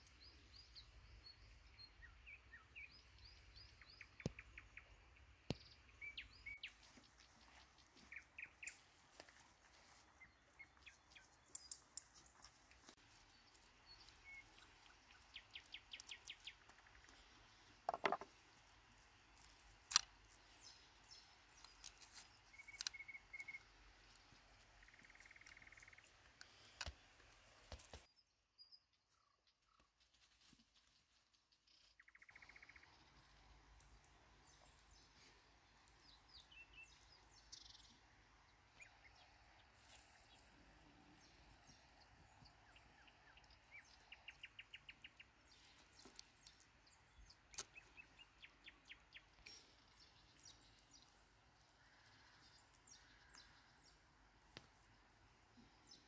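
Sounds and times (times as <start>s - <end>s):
small birds chirping and trilling: 0.0s - 29.9s, 30.8s - 56.0s
sharp clicks and knocks: 17.9s - 18.3s.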